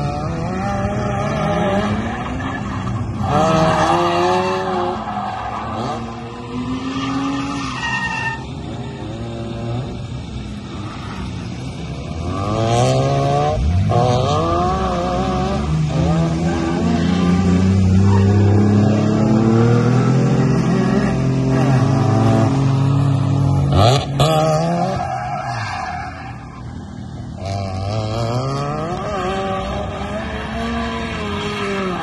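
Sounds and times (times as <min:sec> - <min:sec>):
rotary engine revving: 0:00.0 - 0:07.8
tyres squealing and skidding: 0:00.8 - 0:12.4, 0:15.8 - 0:32.0.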